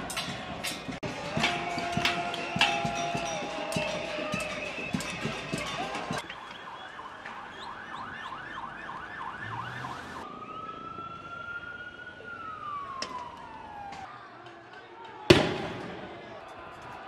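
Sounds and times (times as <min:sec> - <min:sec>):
police siren yelp and wail: 0:01.2 - 0:14.2.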